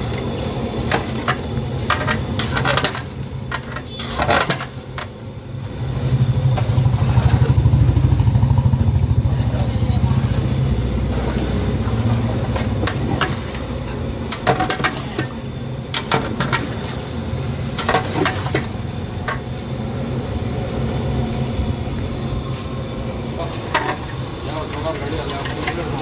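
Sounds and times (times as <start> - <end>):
metal utensils scraping a pot: 0.9 - 5.2
low steady rumble: 5.0 - 25.8.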